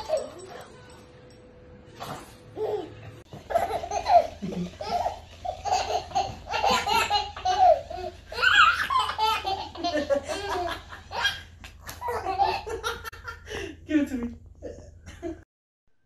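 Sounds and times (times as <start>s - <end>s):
baby laughing: 2.6s - 13.3s.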